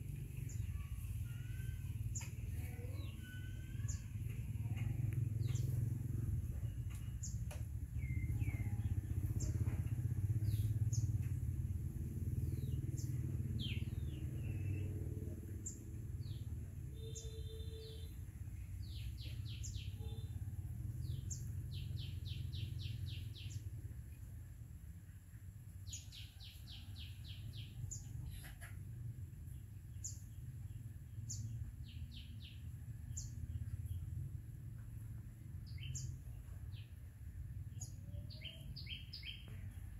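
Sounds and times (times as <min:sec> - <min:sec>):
steady low rumble: 0:00.0 - 0:16.8
small birds chirping: 0:00.0 - 0:24.4, 0:25.0 - 0:39.9.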